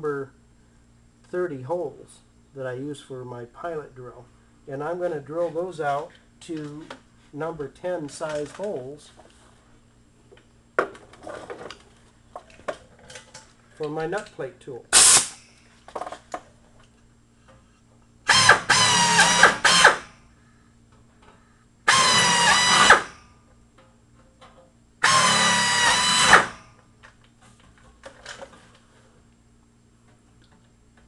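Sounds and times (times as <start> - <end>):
pneumatic air drill whining: 15.0 - 15.4, 18.3 - 20.1, 21.9 - 23.2, 25.0 - 26.7.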